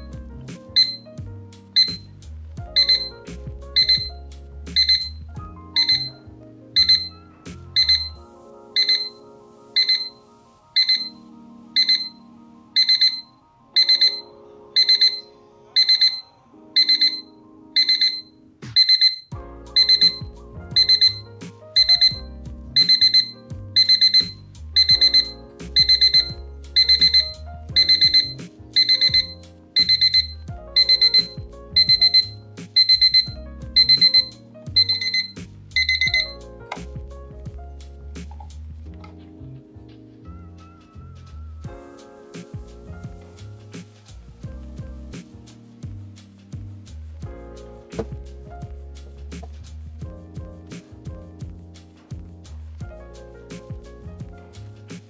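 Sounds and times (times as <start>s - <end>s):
alarm clock beeping: 0.8s - 1.0s, 1.8s - 2.0s, 2.8s - 3.0s, 3.8s - 4.0s, 4.8s - 5.2s, 5.8s - 6.2s, 6.8s - 7.1s, 7.8s - 8.1s, 8.8s - 9.2s, 9.8s - 10.2s, 10.8s - 11.2s, 11.8s - 12.2s, 12.8s - 16.2s, 16.8s - 20.2s, 21.8s - 22.2s, 22.8s - 36.3s.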